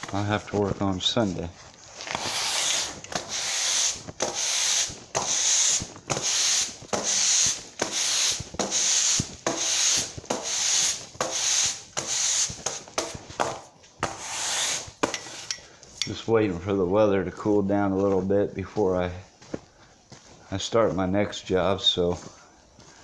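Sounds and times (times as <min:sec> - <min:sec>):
broom sweeping concrete floor: 0:00.0 - 0:16.8.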